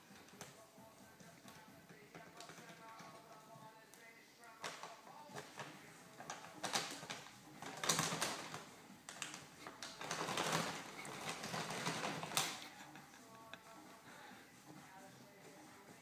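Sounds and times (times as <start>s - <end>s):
rabbit scrabbling on bag: 0.0s - 3.6s, 4.5s - 13.8s
plastic bag crinkling: 4.6s - 13.6s.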